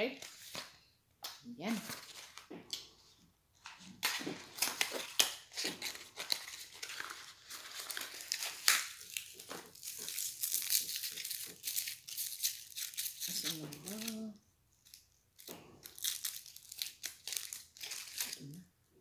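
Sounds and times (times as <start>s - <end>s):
candy wrapper crinkling: 3.6s - 18.7s.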